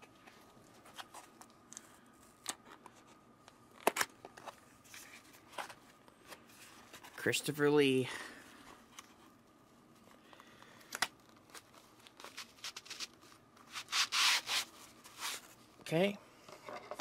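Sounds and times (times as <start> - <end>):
packaging rubbing: 11.2 - 15.5.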